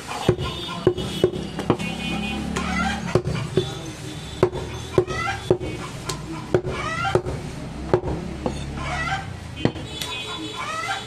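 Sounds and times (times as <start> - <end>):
chopper chopping meat on wood block: 0.3 - 1.9, 2.5 - 3.7, 4.4 - 8.6.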